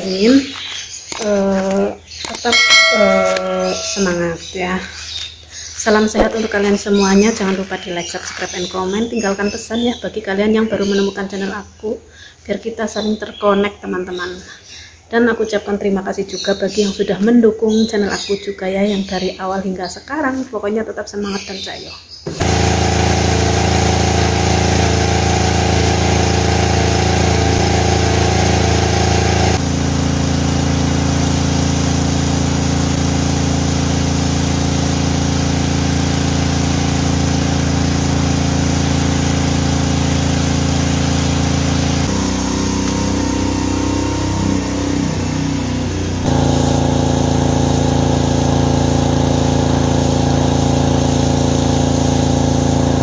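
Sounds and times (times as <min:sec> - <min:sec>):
pressure washer spraying a wall: 0:22.3 - 0:53.0.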